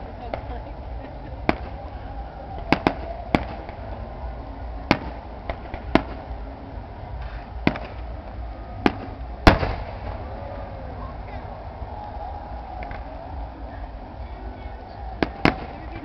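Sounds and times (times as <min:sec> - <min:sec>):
firework shells bursting: 0:07.2 - 0:08.1, 0:08.8 - 0:10.2.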